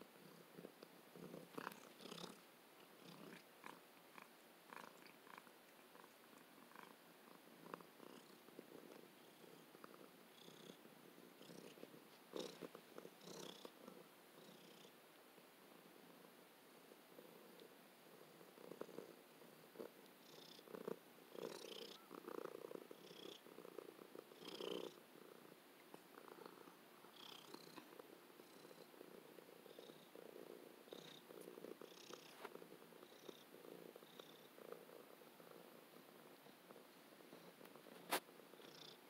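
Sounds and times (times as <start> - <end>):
cat purring: 0.0 - 39.0.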